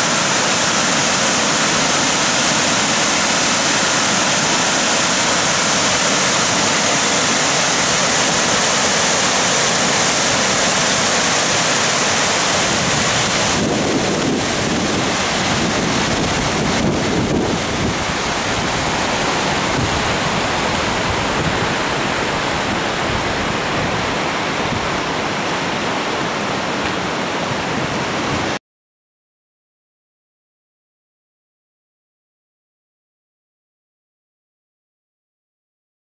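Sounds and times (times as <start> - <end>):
creek rushing: 0.0 - 28.6
wind buffeting microphone: 12.6 - 25.4.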